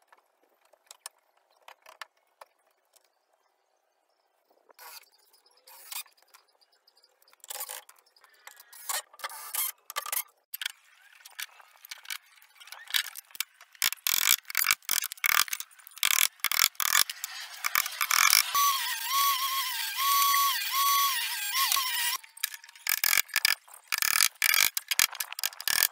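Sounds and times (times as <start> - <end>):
cordless drill driving screw: 13.9 - 24.8.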